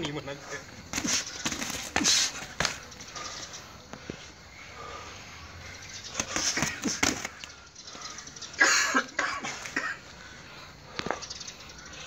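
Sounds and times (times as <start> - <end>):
sharp exhaled breaths: 0.8 - 8.6.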